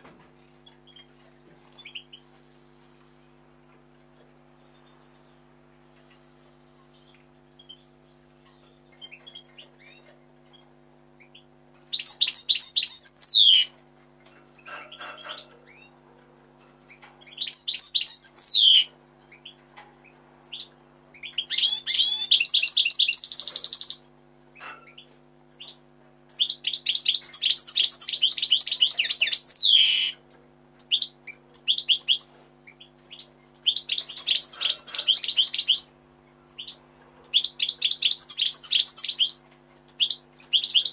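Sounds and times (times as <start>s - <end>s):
goldfinch twittering song: 6.1s - 14.2s, 16.9s - 24.0s, 24.9s - 30.2s, 30.8s - 35.9s, 36.5s - 40.9s.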